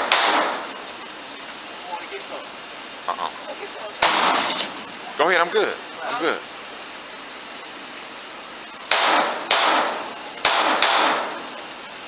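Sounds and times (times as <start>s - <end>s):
rifle gunshots: 0.0s - 0.7s, 4.0s - 4.7s, 8.9s - 11.5s.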